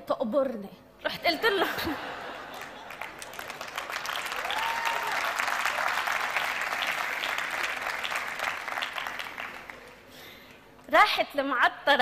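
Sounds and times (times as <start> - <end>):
audience applauding: 2.2 - 10.1.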